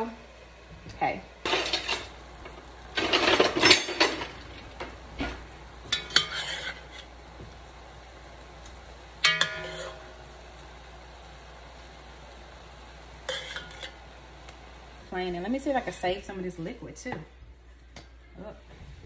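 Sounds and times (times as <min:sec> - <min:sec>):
chicken sizzling: 0:00.0 - 0:19.0
spatula scraping a pot: 0:05.9 - 0:07.1, 0:09.4 - 0:10.0, 0:13.3 - 0:14.0.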